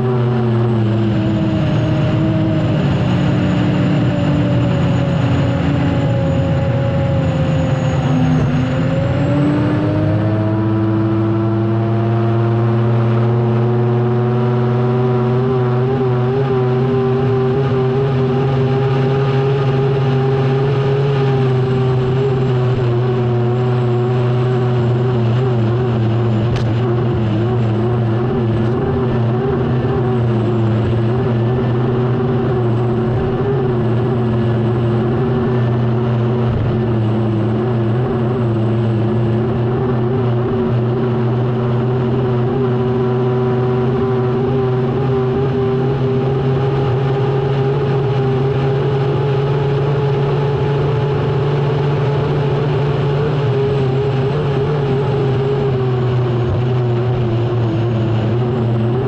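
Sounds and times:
turbine engine whine: 0:00.0 - 0:59.0.

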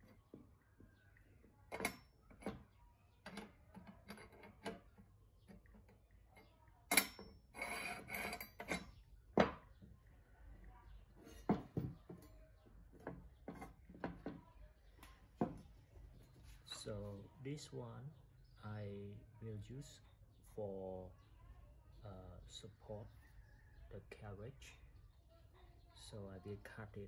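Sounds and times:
metal bars clinking and knocking: 0:01.7 - 0:06.1, 0:06.9 - 0:09.8, 0:11.2 - 0:12.4
metal bar scraping along bench: 0:06.9 - 0:09.0.

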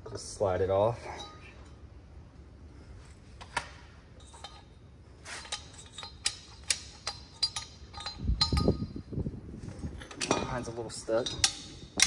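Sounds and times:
metallic clicks of steel parts: 0:03.4 - 0:09.0, 0:09.8 - 0:12.0.

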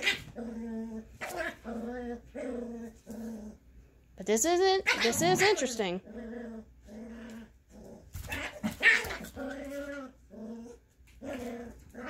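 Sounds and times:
dog yapping: 0:00.0 - 0:00.4, 0:04.8 - 0:05.5, 0:08.2 - 0:10.1
dogs growling: 0:00.0 - 0:03.8, 0:04.9 - 0:12.0.

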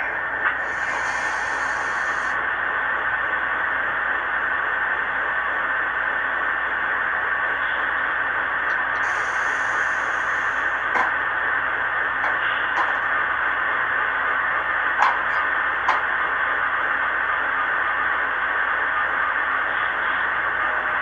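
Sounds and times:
diesel idle through small speakers: 0:00.0 - 0:06.1, 0:06.7 - 0:21.0
high hiss: 0:00.6 - 0:02.4.

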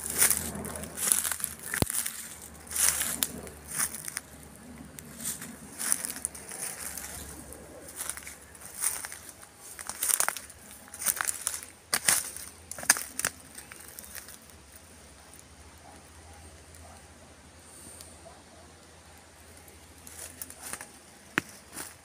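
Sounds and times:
footsteps crunching dry leaves: 0:00.0 - 0:15.2, 0:19.8 - 0:22.0.

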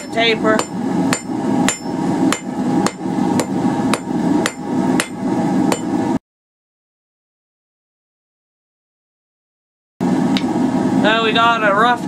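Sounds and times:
hammer striking steel on anvil: 0:00.0 - 0:06.0.

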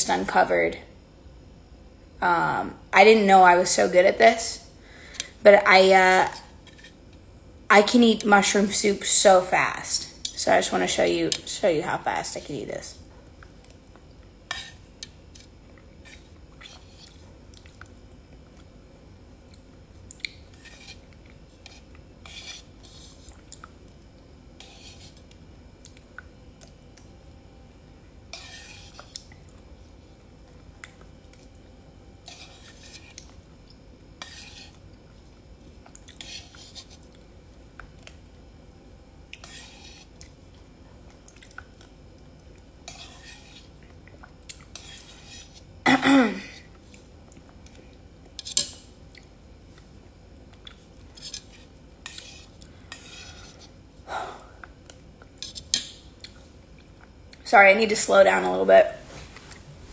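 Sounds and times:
spoon scraping a bowl: 0:06.6 - 0:07.0, 0:14.5 - 0:17.2, 0:20.5 - 0:23.4, 0:24.6 - 0:25.4, 0:28.3 - 0:29.2, 0:32.2 - 0:33.3, 0:34.2 - 0:34.8, 0:36.2 - 0:37.1, 0:39.4 - 0:40.2, 0:42.8 - 0:43.8, 0:44.6 - 0:45.7, 0:48.4 - 0:48.8, 0:51.1 - 0:53.8, 0:55.4 - 0:55.9
chewing: 0:15.4 - 0:18.7, 0:23.2 - 0:24.0, 0:40.2 - 0:42.6, 0:50.5 - 0:51.5.

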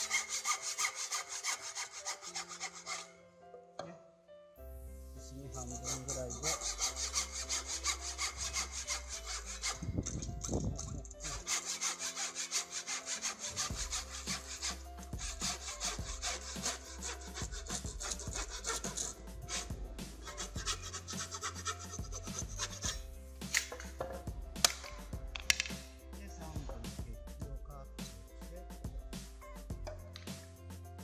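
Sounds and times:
handsaw cutting wood: 0:00.0 - 0:03.2, 0:05.3 - 0:23.0.

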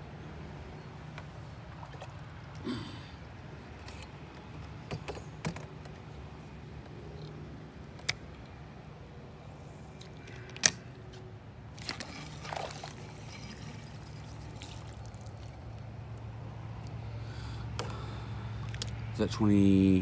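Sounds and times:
water splashing and dripping: 0:11.7 - 0:15.8, 0:18.5 - 0:19.1.

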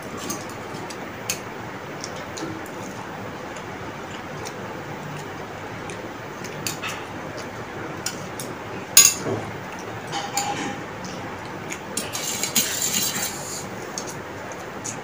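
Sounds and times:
noodles being slurped: 0:12.0 - 0:13.7.

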